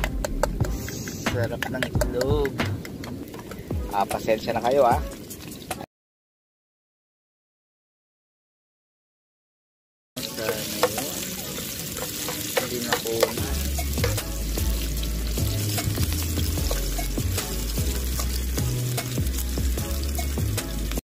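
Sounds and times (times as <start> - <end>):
background music bass: 0.0 - 5.8, 12.1 - 21.0
oil sizzling and crackling in pan: 5.0 - 5.8, 10.2 - 21.0
metal tongs tapping a pan: 10.2 - 14.3, 18.0 - 19.1.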